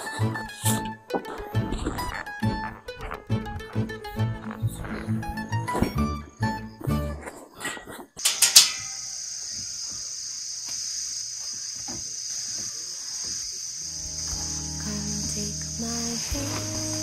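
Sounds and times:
background music: 0.0 - 7.3, 13.9 - 17.0
crickets chirring: 8.2 - 17.0.

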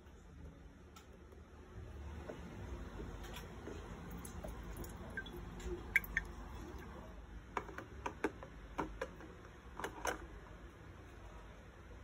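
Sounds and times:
water pouring into tank: 4.2 - 7.0.

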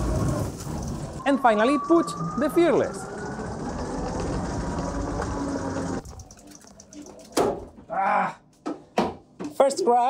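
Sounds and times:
electric go-kart motor and wheels: 0.0 - 6.0.

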